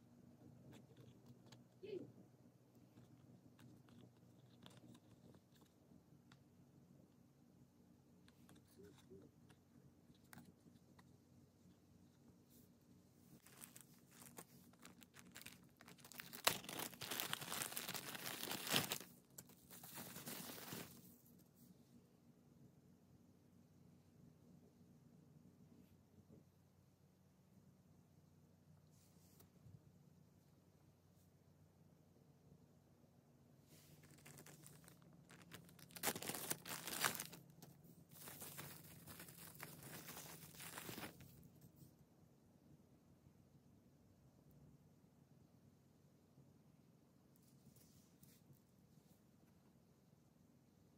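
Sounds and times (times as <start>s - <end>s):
plastic packaging crinkling: 13.4s - 21.1s, 34.0s - 41.3s.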